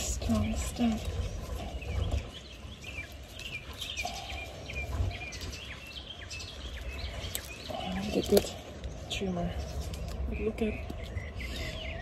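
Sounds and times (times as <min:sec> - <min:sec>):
low rumble: 0:00.0 - 0:12.0
small birds chirping: 0:00.0 - 0:12.0.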